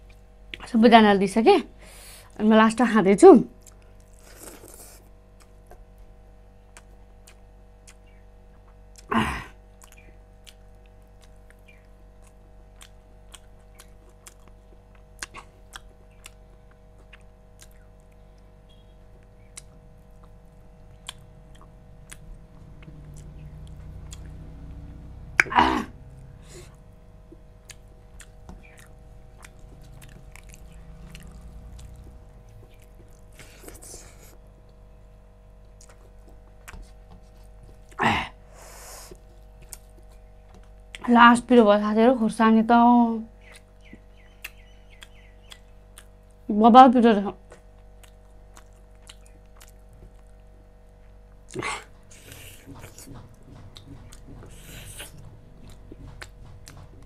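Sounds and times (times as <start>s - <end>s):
faint steady hum: 0.0s - 57.0s
person chewing food: 3.6s - 34.9s, 35.6s - 38.0s, 38.6s - 41.0s, 43.3s - 46.4s, 47.4s - 57.0s.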